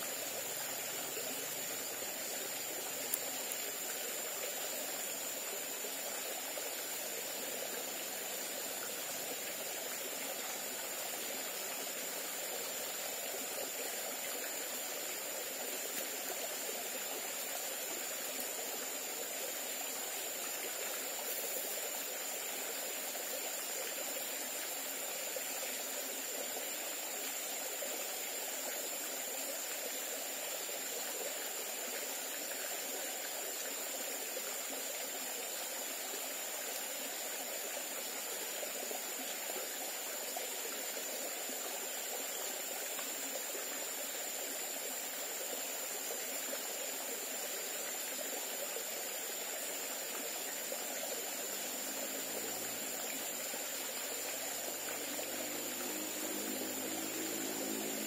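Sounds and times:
stream trickling over stones: 0:00.0 - 0:58.0.

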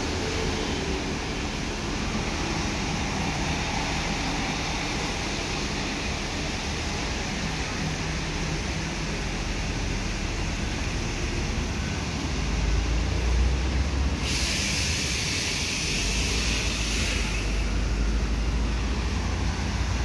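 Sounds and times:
traffic rumble: 0:00.0 - 0:20.0
loud hiss: 0:14.2 - 0:18.1.

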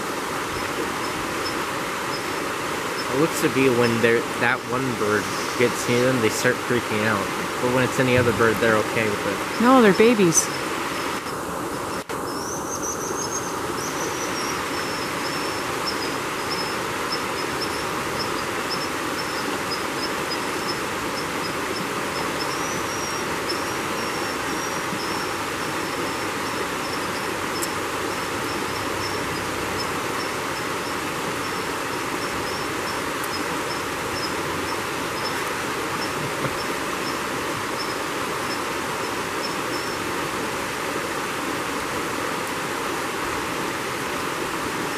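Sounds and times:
creek rushing over rocks: 0:00.0 - 0:44.9
high-pitched chirping: 0:22.4 - 0:31.6.

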